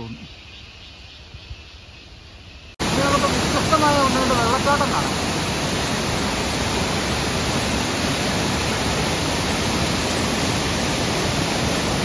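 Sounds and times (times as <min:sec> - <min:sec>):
waterfall rushing: 0:02.8 - 0:12.0.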